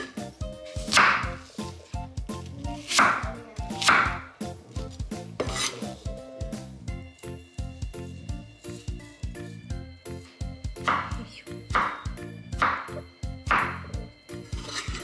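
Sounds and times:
knife slicing apple on wooden board: 0.0 - 1.6, 2.7 - 6.0, 14.5 - 15.0.

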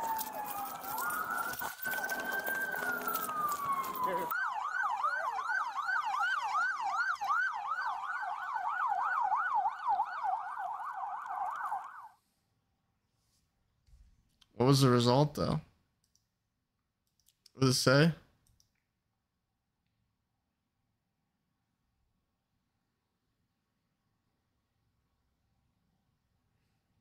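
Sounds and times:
police sirens wailing: 0.0 - 12.1
siren fast yelp: 0.0 - 12.2.

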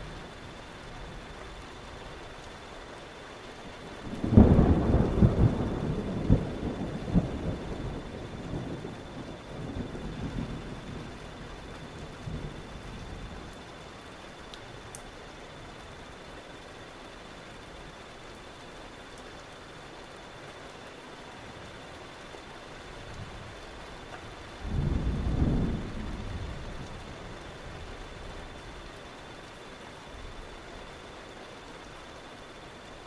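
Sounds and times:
rain hiss: 0.0 - 33.0
thunder clap rumbling: 4.1 - 13.6, 24.6 - 27.7.

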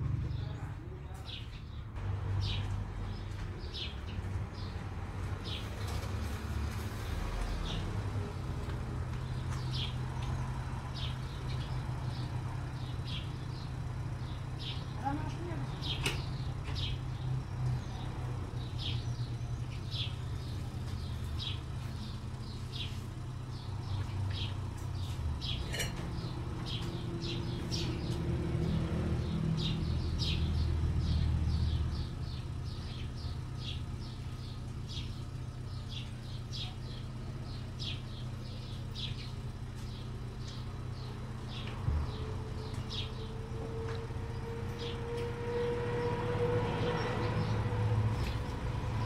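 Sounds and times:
small bird chirping: 31.5 - 43.5.

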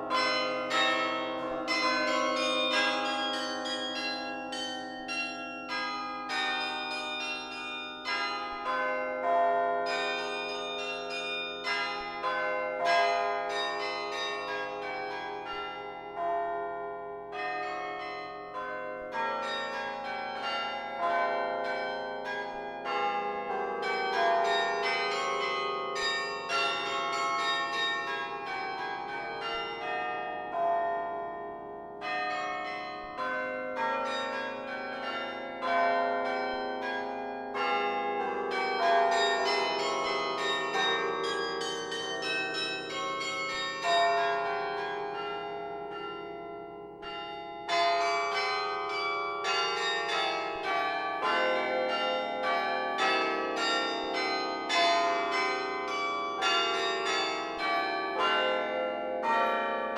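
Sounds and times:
carillon bells ringing: 32.0 - 46.4.

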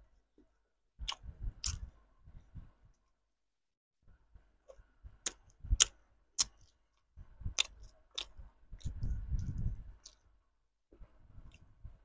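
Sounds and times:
person chewing: 1.0 - 1.9, 4.7 - 10.4
wet mouth clicks: 1.0 - 1.9, 5.2 - 6.8, 7.5 - 10.3.

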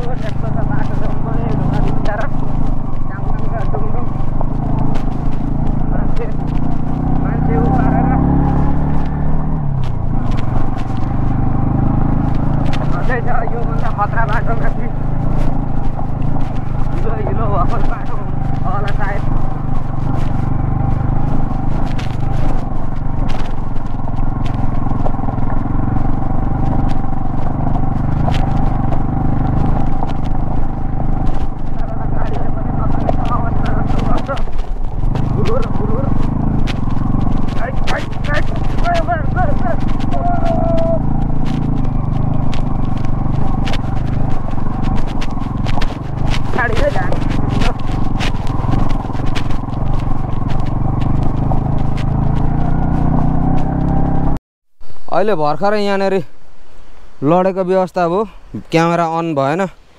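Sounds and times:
bike rattling over stones: 0.0 - 54.4
motorcycle engine running: 0.0 - 59.8.

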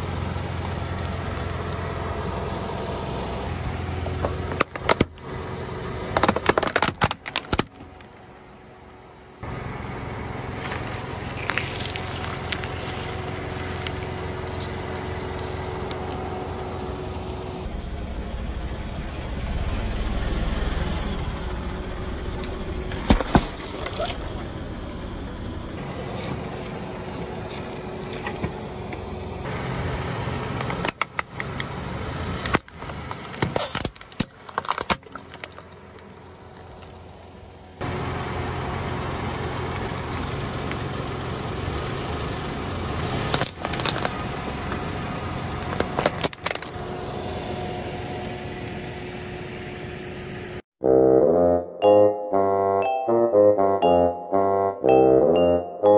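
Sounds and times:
car engine running slowly: 0.0 - 50.6
plastic cracking under tyre: 6.2 - 8.2, 10.6 - 16.0, 32.4 - 36.0, 43.3 - 44.2, 45.7 - 46.8.

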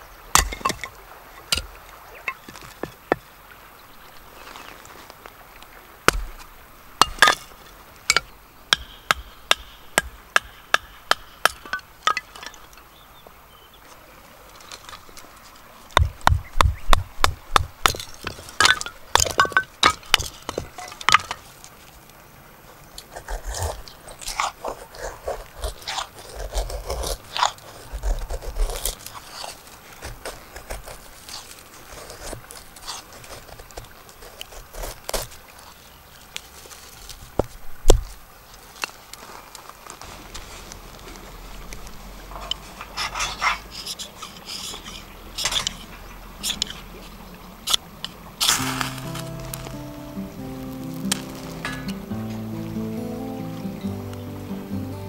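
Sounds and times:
wooden knocks splitting kindling: 0.3 - 3.2, 16.0 - 21.4, 48.4 - 52.4
knife scraping a stick: 23.0 - 35.5, 42.4 - 47.1, 47.7 - 49.9.

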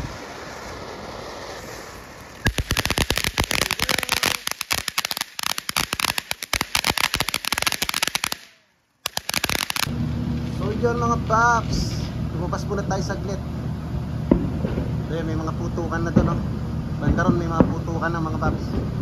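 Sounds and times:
firework hissing: 0.0 - 10.0
firework crackling and popping: 0.0 - 10.6.

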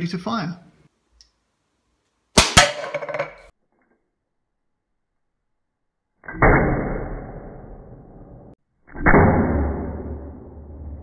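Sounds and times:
pellet revolver shot: 2.4 - 3.0.

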